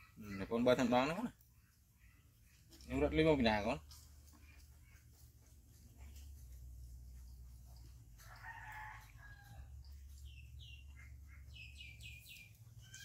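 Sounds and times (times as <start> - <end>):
rooster crowing: 8.2 - 9.7.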